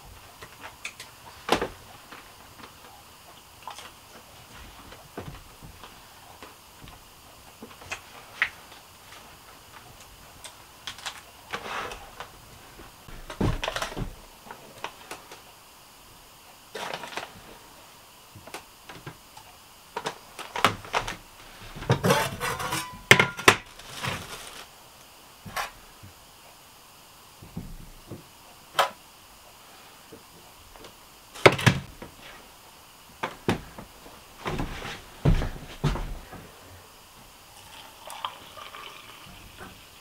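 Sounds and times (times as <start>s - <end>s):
coffee packet rustling: 23.7s - 24.7s.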